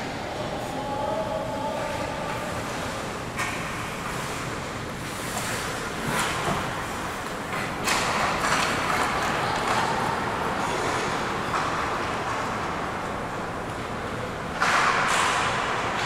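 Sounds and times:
hockey sticks clattering: 0:07.2 - 0:12.6.

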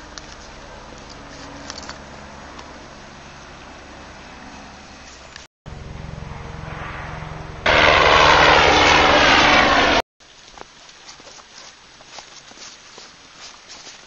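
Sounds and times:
propeller aircraft engine droning: 0:00.0 - 0:10.0
faint footsteps: 0:10.4 - 0:14.0.

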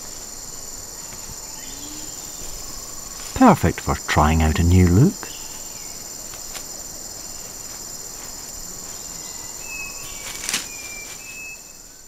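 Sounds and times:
insects droning: 0:00.0 - 0:12.0
thin whistled bird notes: 0:01.0 - 0:03.3, 0:09.1 - 0:12.0.

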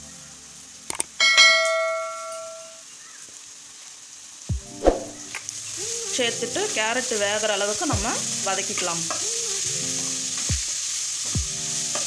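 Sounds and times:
bright bell-like ding: 0:01.2 - 0:02.8.

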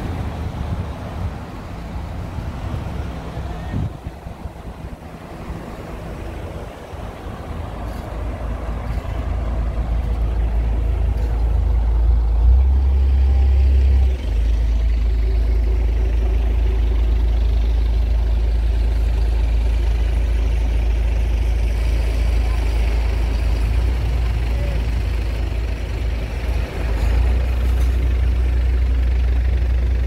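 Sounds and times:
road traffic rumble: 0:00.0 - 0:30.0.

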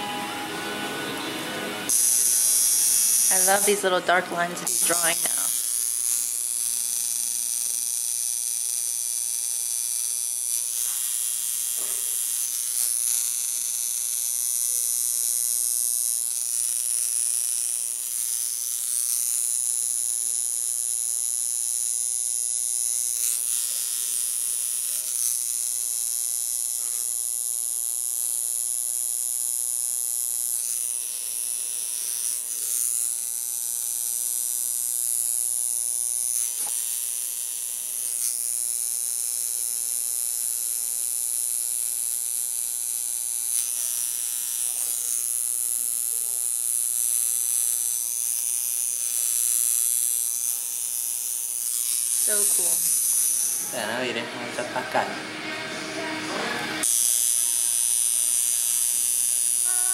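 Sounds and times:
tattoo machine buzzing: 0:00.0 - 0:59.9.

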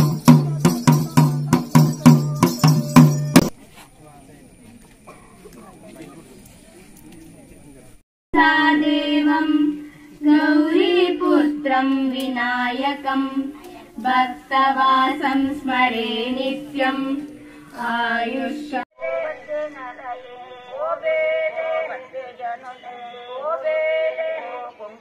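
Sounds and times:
fainter singing voice: 0:08.4 - 0:25.0.

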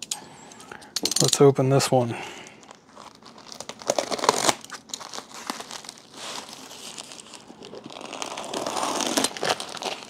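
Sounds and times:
plastic packaging crinkling: 0:02.4 - 0:10.0.

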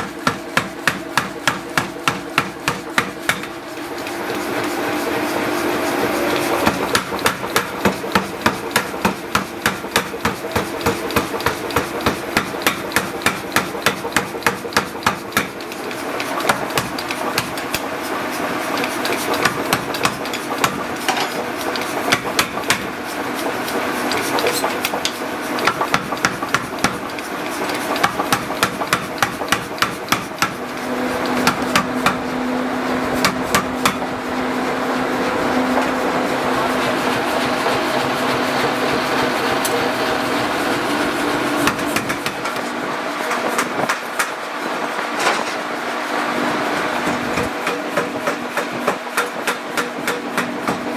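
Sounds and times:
power hammer striking hot steel: 0:00.0 - 0:04.2, 0:06.3 - 0:18.0, 0:18.7 - 0:23.0, 0:24.0 - 0:32.4, 0:33.1 - 0:34.1, 0:41.6 - 0:42.7, 0:47.0 - 0:50.9.

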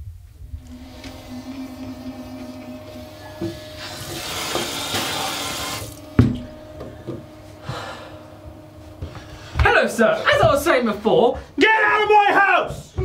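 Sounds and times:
electric toothbrush buzzing: 0:00.4 - 0:10.5
tap running into sink: 0:03.4 - 0:07.2.

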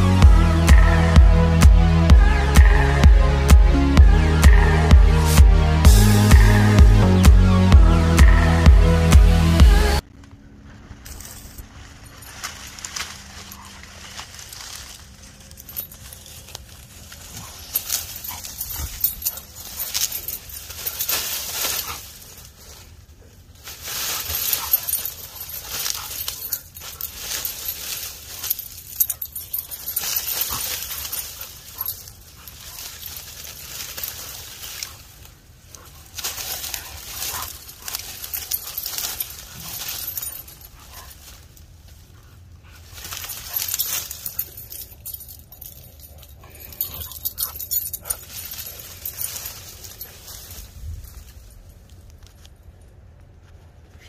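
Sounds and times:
leaves rustling: 0:10.0 - 0:52.8.

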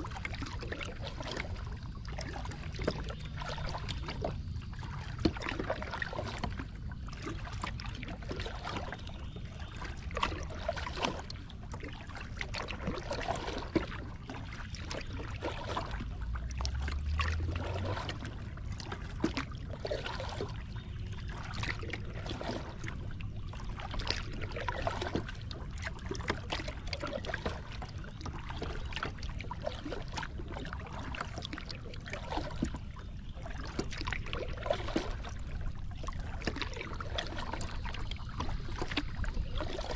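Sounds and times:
steady low rumble: 0:00.0 - 0:08.4, 0:14.0 - 0:26.9
water lapping against plastic hull: 0:00.0 - 0:39.9.

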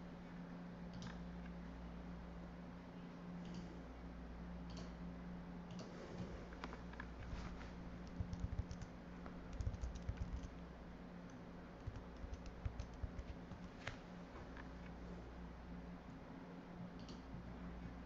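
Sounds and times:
low hum: 0:00.0 - 0:18.0
typing on computer keyboard: 0:08.0 - 0:08.9, 0:09.5 - 0:10.6, 0:11.8 - 0:13.8.

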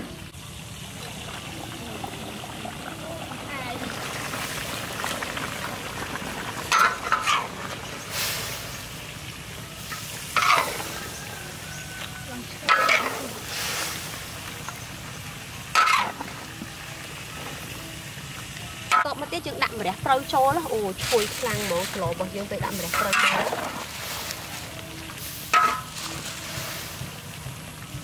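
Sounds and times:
wok sizzling: 0:00.0 - 0:28.0
utensil scraping metal wok: 0:06.6 - 0:09.1, 0:09.8 - 0:14.6, 0:15.7 - 0:16.4, 0:21.0 - 0:27.3.

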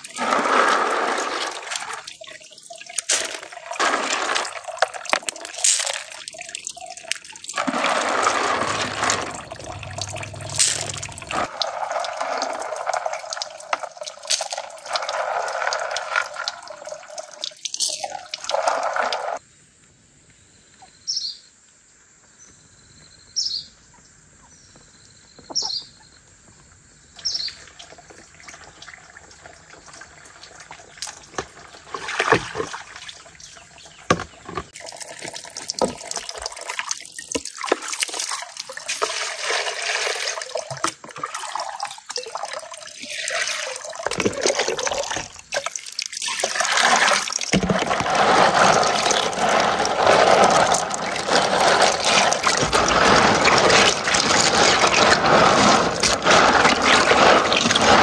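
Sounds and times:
water splashing in plastic tubs: 0:00.0 - 0:19.4, 0:27.2 - 0:58.0
hands swishing basket in water: 0:07.6 - 0:13.4, 0:46.2 - 0:58.0.

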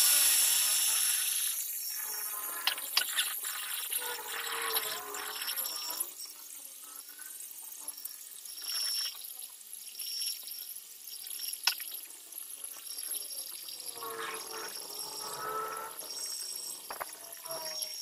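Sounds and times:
metal lathe cutting hiss: 0:00.0 - 0:03.3
high squeals: 0:13.9 - 0:18.0.

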